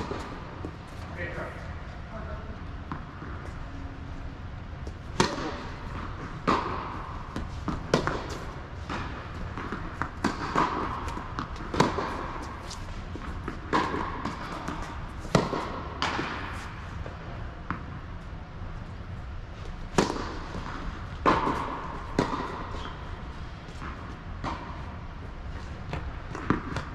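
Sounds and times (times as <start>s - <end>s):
tennis ball hit by rackets: 0.0s - 0.7s, 4.8s - 16.8s, 19.9s - 23.1s, 25.9s - 26.9s
ball bouncing on hard court: 4.8s - 18.0s, 19.6s - 24.9s, 25.8s - 26.9s.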